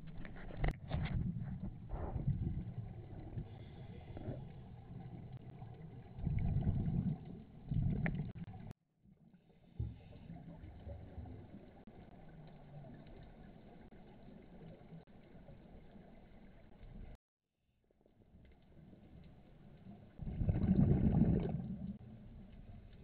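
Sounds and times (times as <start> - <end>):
steady underwater rumble: 0.0 - 17.2, 18.0 - 23.0
scuba exhaust bubbles: 1.5 - 8.7, 18.7 - 23.0.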